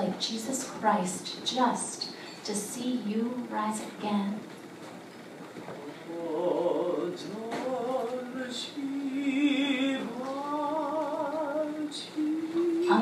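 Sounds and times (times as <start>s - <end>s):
voices singing with vibrato: 5.8s - 13.0s.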